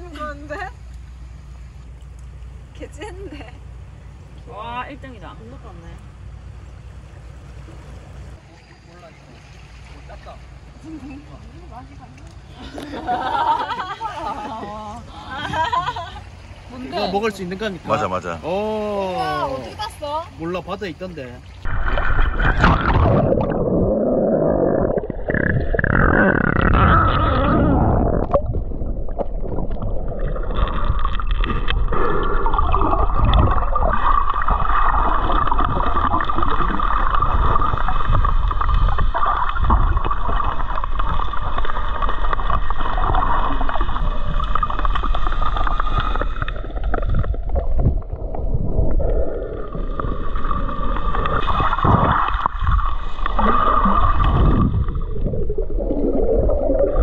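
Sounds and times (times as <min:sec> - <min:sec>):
underwater water rushing and bubbling: 0:21.6 - 0:57.0.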